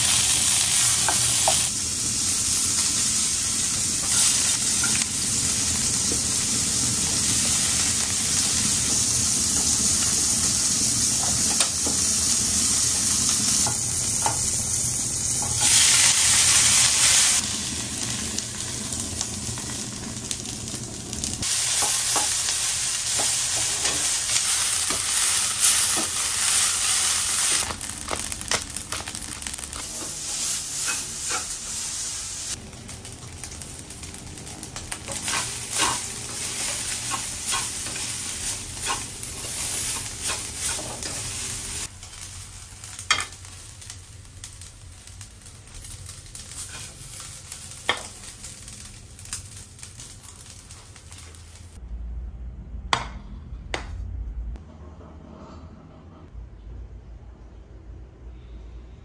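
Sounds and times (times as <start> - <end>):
rice sizzling in a wok: 0.0 - 51.8
spatula scraping a wok: 29.8 - 32.0, 35.1 - 42.3, 46.5 - 47.3
low hum: 51.8 - 59.0.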